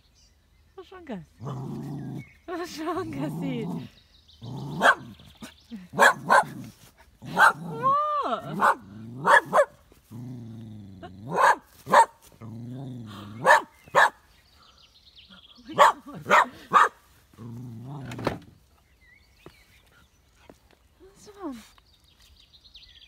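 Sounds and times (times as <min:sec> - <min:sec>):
dog growling: 0:01.4 - 0:11.5, 0:12.4 - 0:13.6, 0:15.8 - 0:18.4
dog barking: 0:04.8 - 0:05.1, 0:06.0 - 0:06.6, 0:07.3 - 0:07.8, 0:08.5 - 0:09.8, 0:11.3 - 0:12.2, 0:13.4 - 0:14.2, 0:15.7 - 0:17.0.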